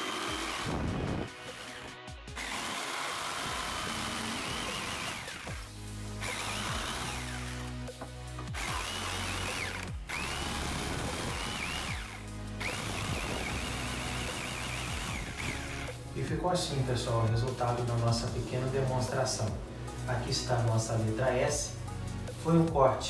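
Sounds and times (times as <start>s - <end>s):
jigsaw cutting wood: 0.0s - 16.0s.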